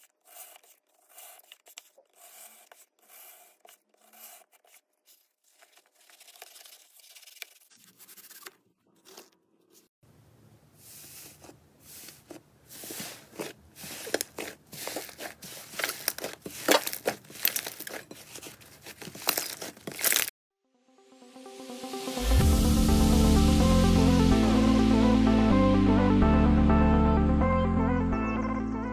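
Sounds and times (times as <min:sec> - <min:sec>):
cutting floral foam: 0:00.0 - 0:05.6, 0:10.9 - 0:20.3
slime crackling and popping: 0:14.1 - 0:18.0.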